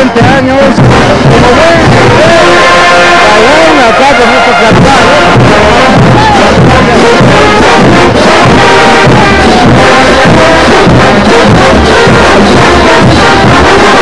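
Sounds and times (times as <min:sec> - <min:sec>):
brass band playing: 0:00.0 - 0:14.0
sousaphone bass notes: 0:00.0 - 0:14.0.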